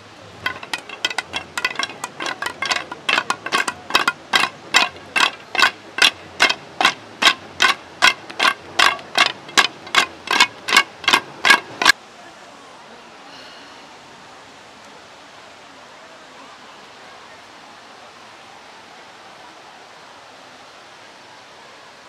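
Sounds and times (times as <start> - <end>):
wooden sticks clacking: 0.4 - 12.0.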